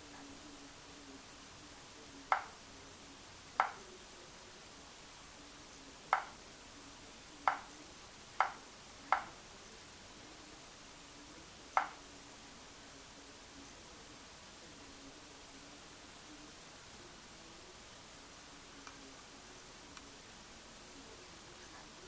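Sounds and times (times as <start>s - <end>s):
touchscreen taps clicking: 3.6s - 3.8s.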